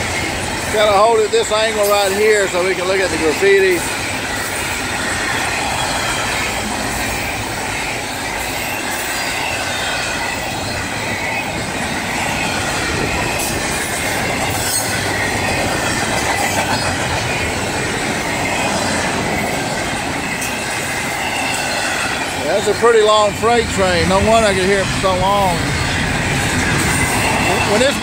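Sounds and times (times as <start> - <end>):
high wheel squeal: 0.0 - 28.0
steel wheels on rail: 0.0 - 28.0.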